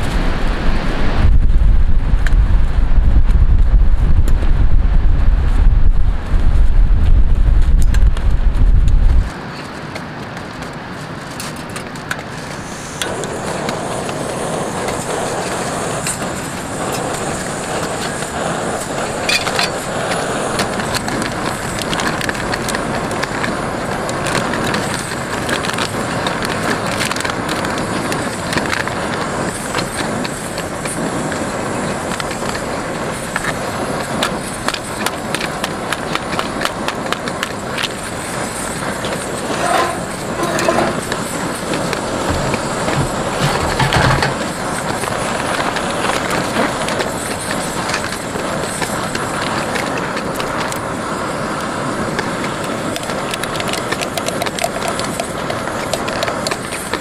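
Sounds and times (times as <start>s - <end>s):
steady rushing noise: 0.0s - 57.0s
powder shaken into metal cup: 53.0s - 56.9s.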